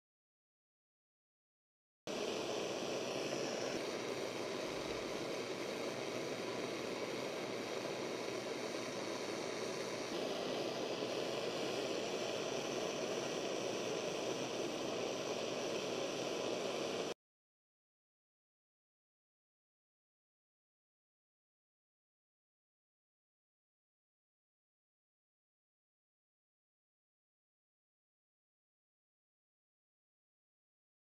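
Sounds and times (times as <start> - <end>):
faint hums: 2.1 - 17.1
steady rushing noise: 2.1 - 17.1.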